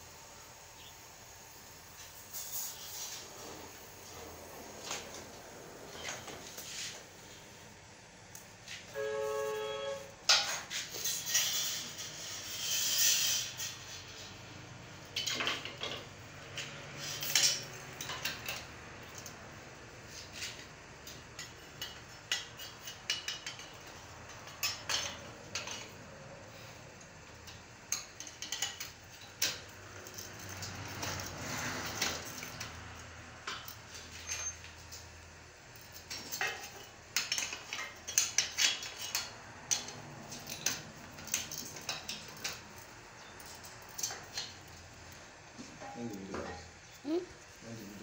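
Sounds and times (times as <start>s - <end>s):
metal scraping: 8.9s - 14.6s
tools and steel parts clinking: 15.1s - 19.4s, 21.4s - 26.0s, 27.4s - 35.0s, 35.7s - 44.8s.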